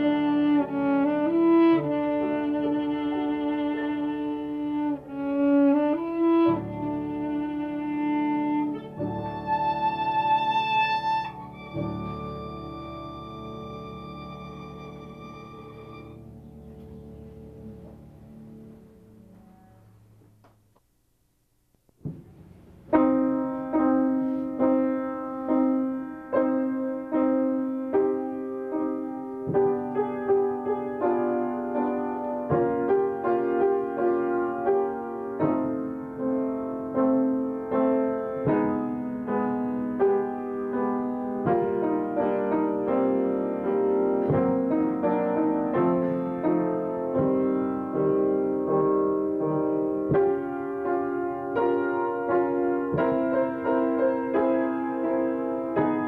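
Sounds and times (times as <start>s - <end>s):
slow piano piece: 0.0s - 21.2s, 21.8s - 56.0s.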